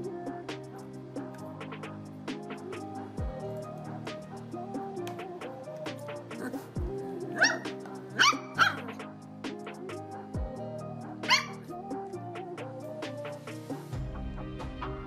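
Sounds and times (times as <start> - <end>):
background music: 0.0 - 15.0
puppy yipping: 7.4 - 9.0, 11.3 - 11.6.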